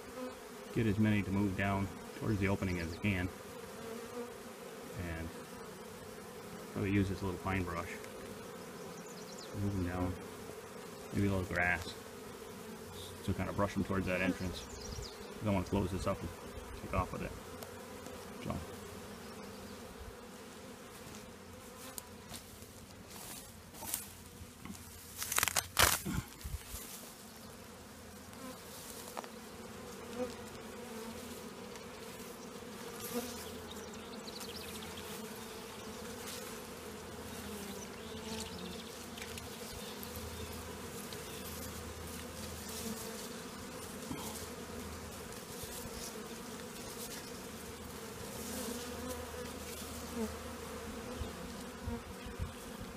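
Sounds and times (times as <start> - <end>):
honeybees buzzing: 0.0 - 52.9
rustling and clicks: 23.8 - 26.8.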